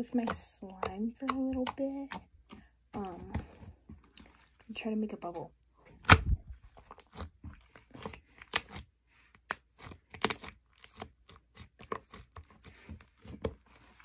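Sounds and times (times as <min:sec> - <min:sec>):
slime squished by hand: 0:06.0 - 0:14.0.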